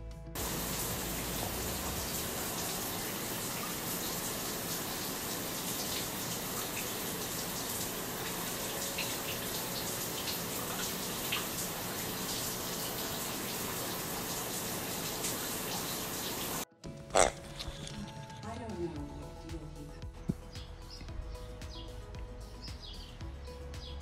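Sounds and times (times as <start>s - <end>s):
running water rushing: 0.4s - 17.9s.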